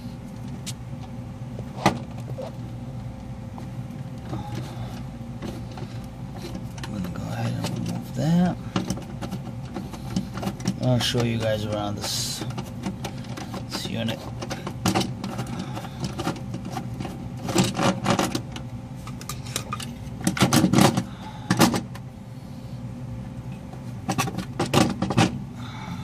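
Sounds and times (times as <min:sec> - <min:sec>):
low machinery hum: 0:00.0 - 0:26.0
clicks and metallic rattles of wiring: 0:04.2 - 0:22.0, 0:24.0 - 0:25.4.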